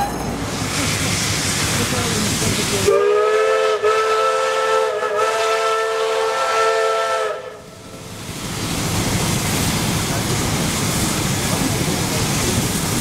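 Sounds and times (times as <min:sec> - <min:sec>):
hiss of steam: 0:00.4 - 0:04.2
steam locomotive whistle: 0:02.9 - 0:07.8.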